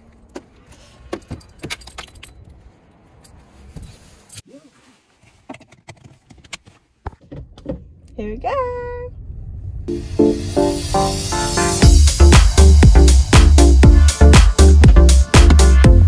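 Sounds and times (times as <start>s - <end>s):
keys jangling: 1.2s - 2.6s.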